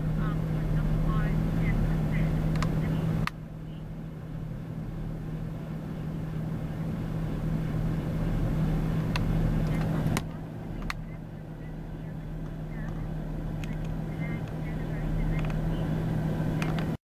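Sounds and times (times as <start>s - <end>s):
truck engine idling: 0.0s - 17.0s
sharp clicks: 9.1s - 11.1s, 12.4s - 15.8s.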